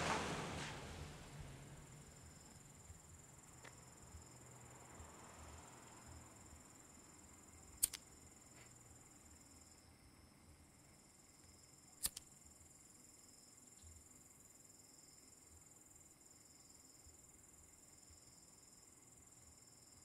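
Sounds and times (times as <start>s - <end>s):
car pulling away: 0.0s - 6.6s
crickets chirring: 0.0s - 20.0s
lighter clicking: 7.8s - 8.1s, 12.0s - 12.3s.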